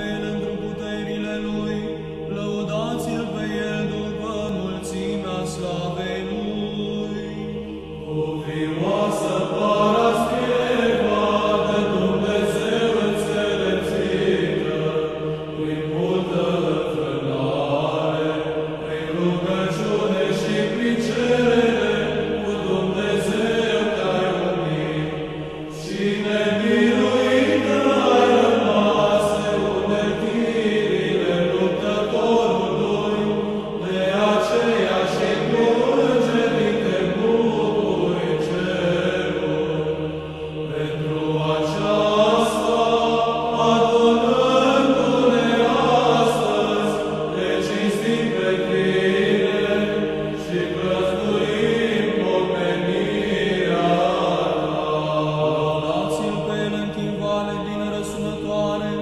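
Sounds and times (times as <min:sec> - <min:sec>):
church choir chanting: 0:00.0 - 0:59.0.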